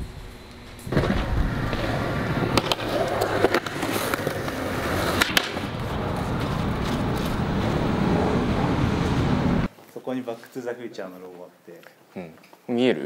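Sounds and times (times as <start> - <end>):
skateboard wheels rolling on concrete: 0.8 - 9.7
sharp skateboard clacks: 2.4 - 7.4.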